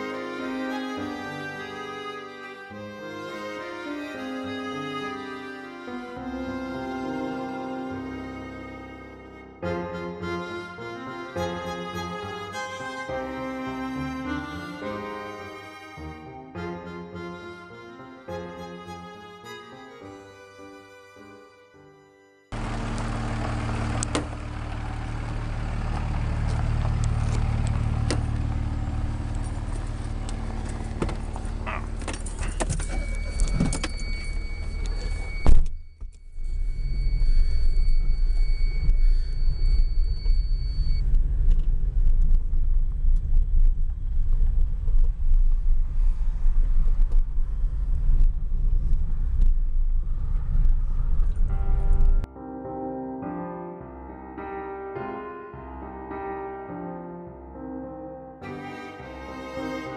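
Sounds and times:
pickup truck engine driving off: 0:22.6 - 0:32.4
road rumble inside car: 0:22.6 - 0:52.3.

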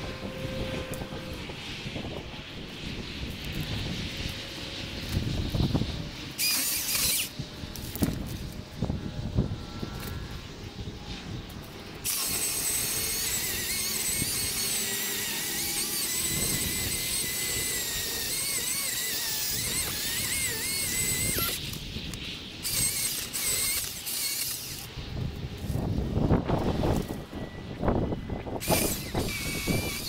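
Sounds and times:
battery chainsaw cutting: 0:06.4 - 0:08.4, 0:12.0 - 0:21.8, 0:22.6 - 0:24.9, 0:28.6 - 0:30.0.

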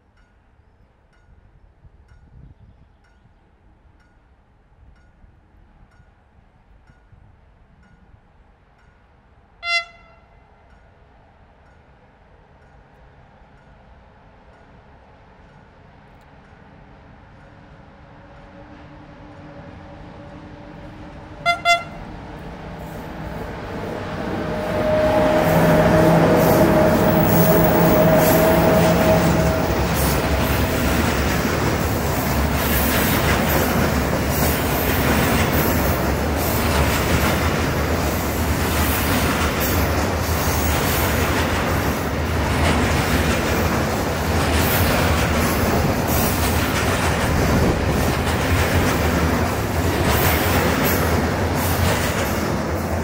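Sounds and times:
electric locomotive humming: 0:08.8 - 0:53.0
wheels clacking over rail joints: 0:20.3 - 0:53.0.

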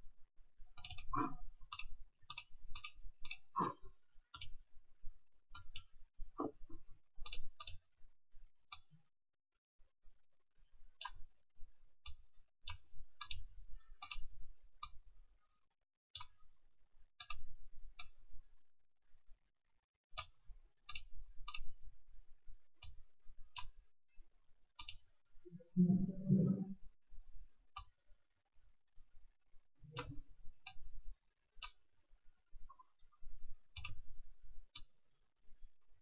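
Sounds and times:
mouse buttons clicking: 0:30.0 - 0:30.2, 0:33.8 - 0:34.0.

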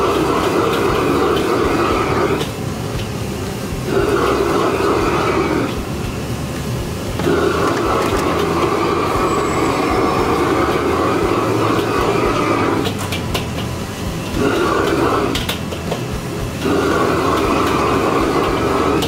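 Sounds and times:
gas wok burner roaring: 0:00.0 - 0:19.0
noodles frying in wok: 0:00.0 - 0:19.0.

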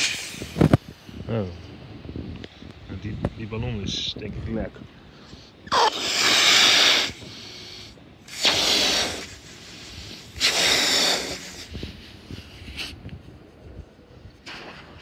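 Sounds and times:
breaths blown into balloon: 0:00.0 - 0:00.7, 0:05.7 - 0:13.0.

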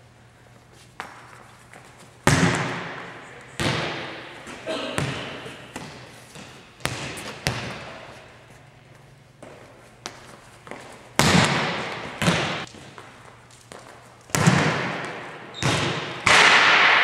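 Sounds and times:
volleyball hits and bounces: 0:02.2 - 0:08.1, 0:11.2 - 0:17.0.

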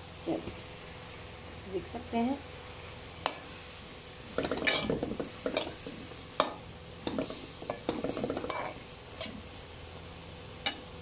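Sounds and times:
light sizzle: 0:00.0 - 0:11.0
spatula scraping frying pan: 0:04.3 - 0:09.4.

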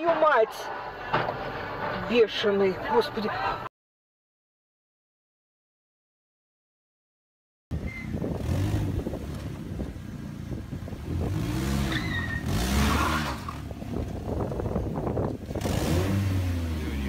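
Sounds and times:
street noise: 0:00.0 - 0:03.7, 0:07.7 - 0:17.0
car engine revving: 0:08.2 - 0:17.0.

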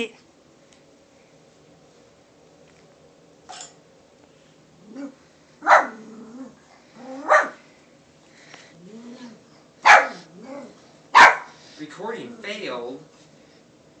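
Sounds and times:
puppy barking: 0:05.6 - 0:06.0, 0:07.2 - 0:07.6, 0:09.8 - 0:10.3, 0:11.1 - 0:11.6.

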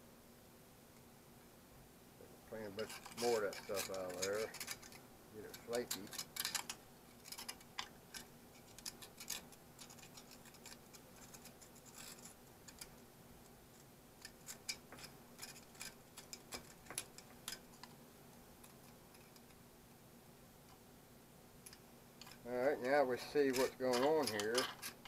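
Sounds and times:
tool picking rust from metal: 0:02.7 - 0:10.8, 0:23.3 - 0:25.0.

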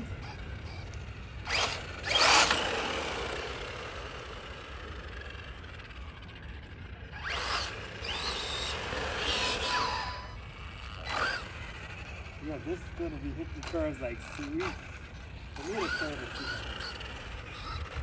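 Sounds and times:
toy truck electric motor whining: 0:00.0 - 0:18.0.

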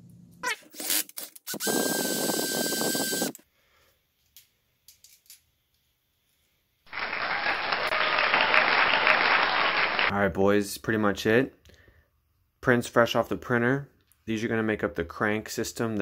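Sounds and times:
cordless drill whining: 0:00.9 - 0:03.4.

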